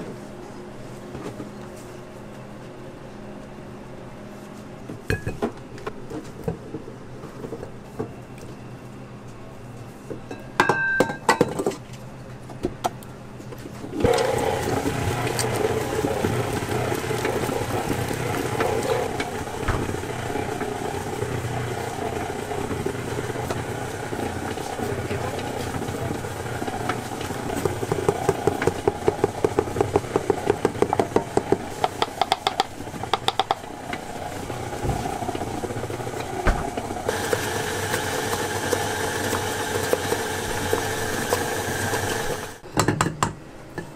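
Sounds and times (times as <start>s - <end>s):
stand mixer motor running: 13.9s - 42.6s
metal mixing bowl clanking: 14.0s - 42.6s.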